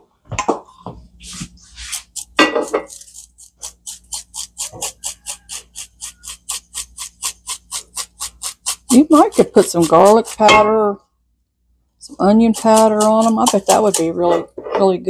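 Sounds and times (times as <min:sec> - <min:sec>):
shaker clatter: 0:01.1 - 0:10.6, 0:12.4 - 0:14.4.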